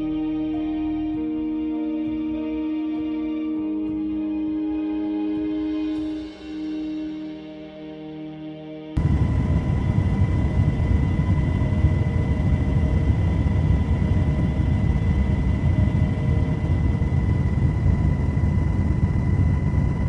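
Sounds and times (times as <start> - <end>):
helicopter cabin rumble and whine: 9.0 - 20.0.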